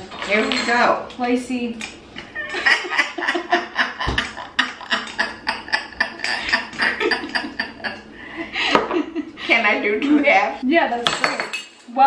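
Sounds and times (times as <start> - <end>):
women laughing: 2.2 - 9.5.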